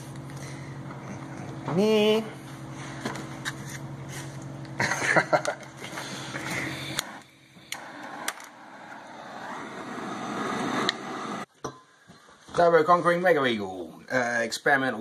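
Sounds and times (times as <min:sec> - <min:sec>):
blowtorch flame hissing: 0:05.2 - 0:11.5.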